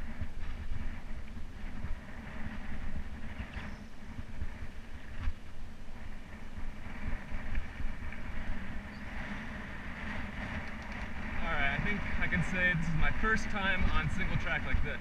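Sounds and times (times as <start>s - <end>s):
bike rattling over bumps: 0.0s - 15.0s
wind buffeting microphone: 0.0s - 15.0s.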